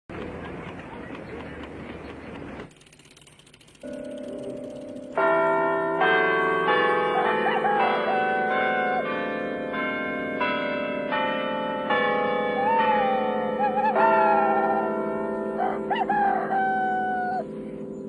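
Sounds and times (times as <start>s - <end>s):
bells ringing: 3.8s - 18.0s.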